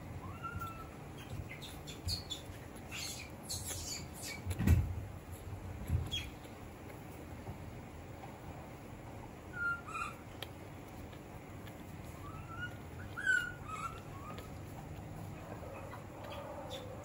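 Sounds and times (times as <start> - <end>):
baby monkey squeaking: 0.2 - 4.6, 9.5 - 10.2, 12.2 - 14.6.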